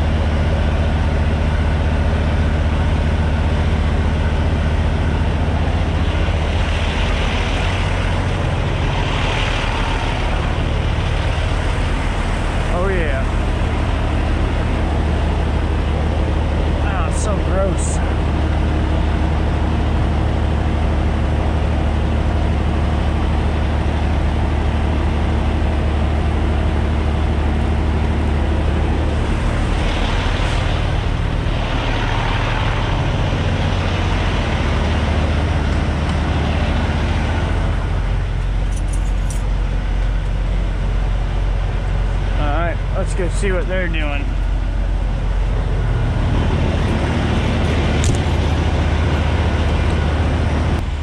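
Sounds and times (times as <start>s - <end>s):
diesel truck engine idling: 0.0s - 51.0s
rushing noise: 2.9s - 38.8s, 39.5s - 51.0s.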